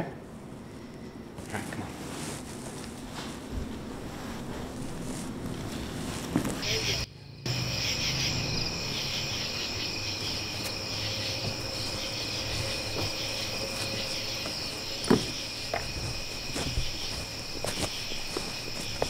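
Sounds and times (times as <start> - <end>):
crickets trilling: 6.4 - 19.0.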